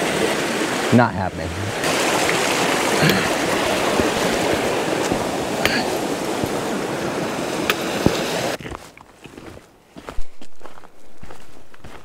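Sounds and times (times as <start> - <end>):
water rushing: 0.0 - 8.6.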